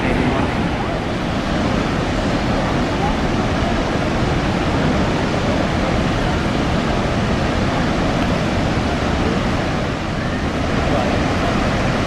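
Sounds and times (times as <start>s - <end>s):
waterfall roaring: 0.0s - 12.0s.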